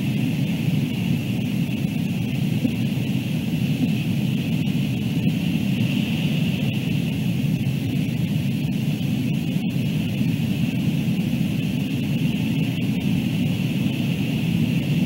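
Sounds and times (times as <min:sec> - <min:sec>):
wind noise on microphone: 0:00.0 - 0:15.0.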